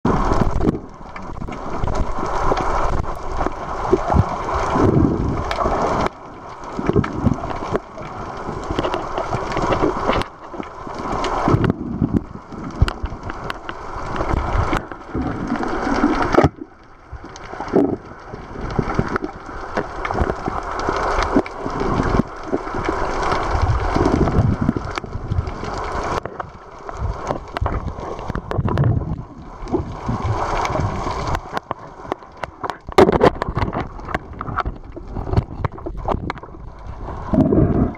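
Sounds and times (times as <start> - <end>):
muffled underwater water rushing: 0.0 - 37.9.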